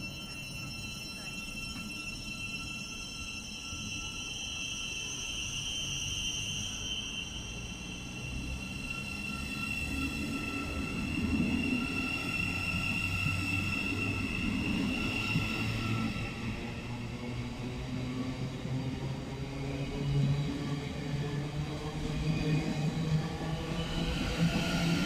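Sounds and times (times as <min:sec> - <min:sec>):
electric train whine: 0:00.0 - 0:25.0.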